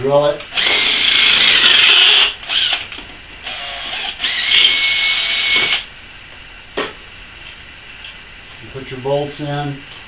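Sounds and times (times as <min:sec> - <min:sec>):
electric drill boring metal: 0:00.5 - 0:02.8, 0:03.4 - 0:05.8.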